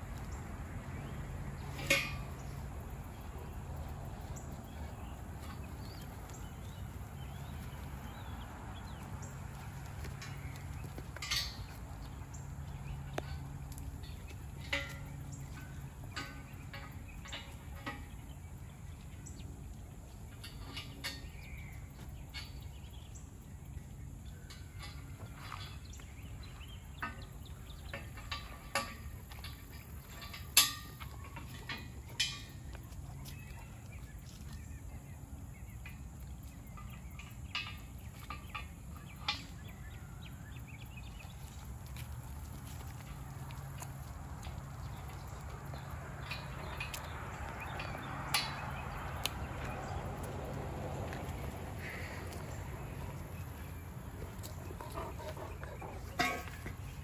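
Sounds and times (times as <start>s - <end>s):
steel parts clanking: 1.0s - 8.3s, 10.0s - 22.9s, 24.3s - 33.9s, 44.4s - 57.0s.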